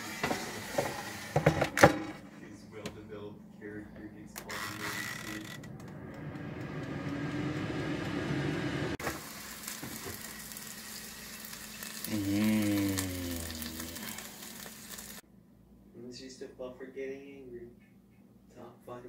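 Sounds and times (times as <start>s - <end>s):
frankfurters sizzling: 6.0s - 15.2s
man humming: 12.0s - 14.6s.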